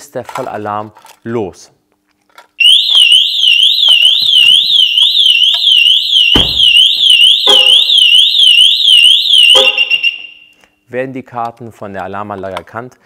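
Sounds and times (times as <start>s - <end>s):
car alarm siren warbling: 2.6s - 10.5s
car door thumping shut: 6.3s - 6.8s.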